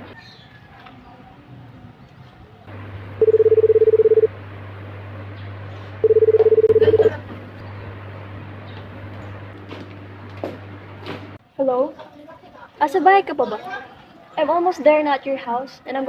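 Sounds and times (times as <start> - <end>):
phone ringing: 3.2 - 4.3, 6.0 - 7.2.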